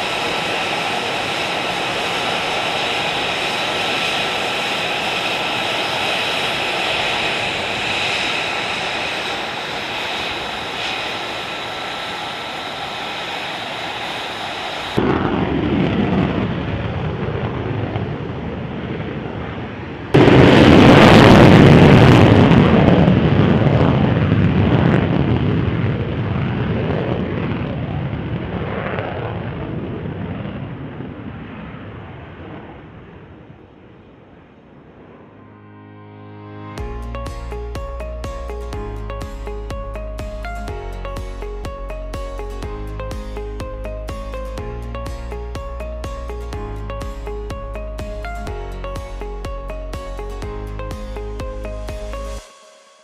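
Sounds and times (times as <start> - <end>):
jet engine turbine whine: 0.0 - 35.8
jet engine rumble: 0.0 - 52.4
jet takeoff roar: 0.0 - 52.5.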